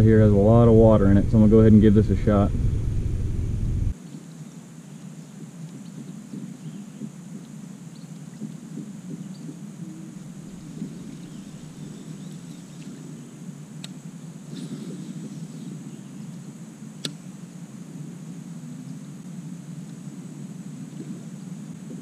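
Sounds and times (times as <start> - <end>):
low rumble: 0.0 - 4.0
insects droning: 0.0 - 22.0.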